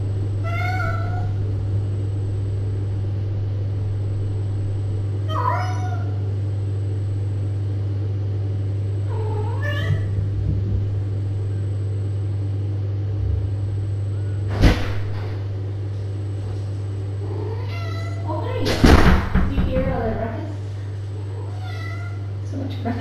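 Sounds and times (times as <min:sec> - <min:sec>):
steady low hum: 0:00.0 - 0:23.0
cat meowing: 0:00.4 - 0:01.4, 0:05.3 - 0:06.2, 0:09.1 - 0:10.1, 0:17.4 - 0:18.3, 0:21.3 - 0:22.3.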